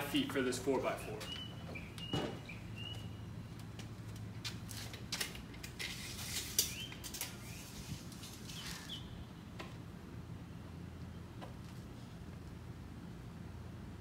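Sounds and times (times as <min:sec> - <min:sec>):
tape measure clicks and rattles: 0:04.4 - 0:08.9
tape measure sliding rasp: 0:05.6 - 0:08.9.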